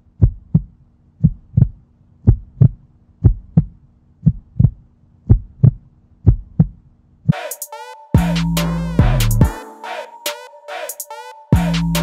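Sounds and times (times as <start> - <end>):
heartbeat thumps: 0.2 - 6.8.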